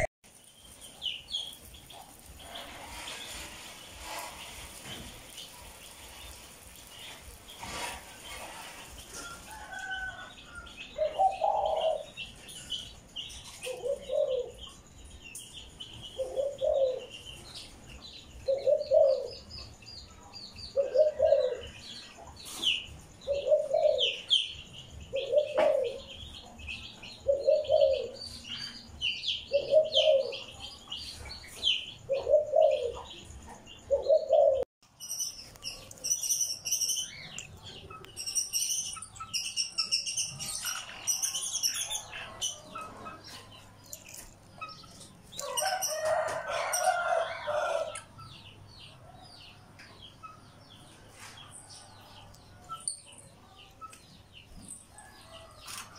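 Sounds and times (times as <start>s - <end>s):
dove cooing: 11.0s - 12.2s, 13.6s - 14.6s, 16.2s - 17.1s, 18.4s - 19.4s, 20.8s - 21.8s, 23.2s - 24.3s, 25.1s - 26.1s, 27.2s - 28.2s, 29.5s - 30.5s, 32.1s - 33.1s, 33.9s - 34.6s
parrots chirping and chattering: 34.9s - 48.4s.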